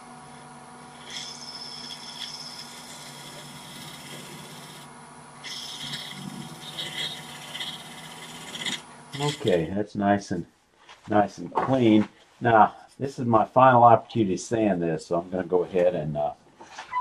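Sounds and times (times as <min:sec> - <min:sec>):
lathe humming: 0:00.0 - 0:09.7
scraper cutting spinning wood: 0:00.8 - 0:09.7.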